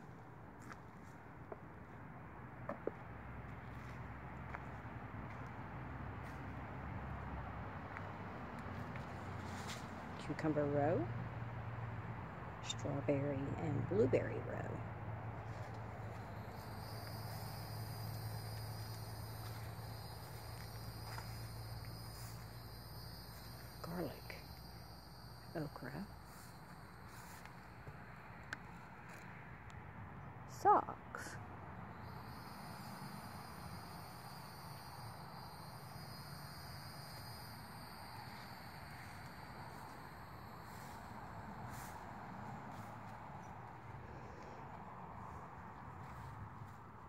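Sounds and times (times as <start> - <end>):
low steady hum: 0.0 - 47.0
crickets chirping: 2.6 - 29.9, 30.5 - 47.0
high-pitched insect song: 14.9 - 29.2, 31.8 - 43.7.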